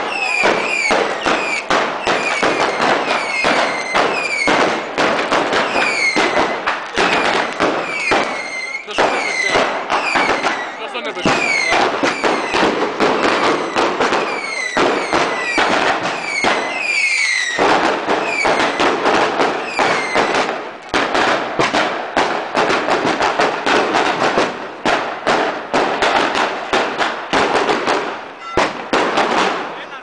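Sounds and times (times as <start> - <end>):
falling firework whistles: 0.0 - 4.7, 5.5 - 12.7, 13.3 - 18.9, 19.6 - 20.4
fireworks bangs and crackles: 0.0 - 30.0.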